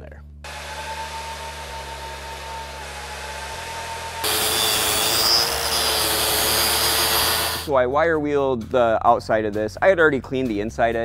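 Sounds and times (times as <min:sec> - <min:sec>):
angle grinder wire wheel on steel: 0:00.5 - 0:07.7
welding arc humming: 0:00.5 - 0:07.7.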